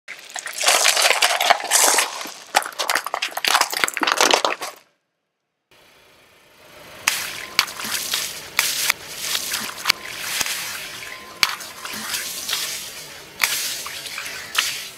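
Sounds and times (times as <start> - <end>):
plastic cups crunching under tyre: 0.1 - 4.9
sharp crack: 13.4 - 14.9.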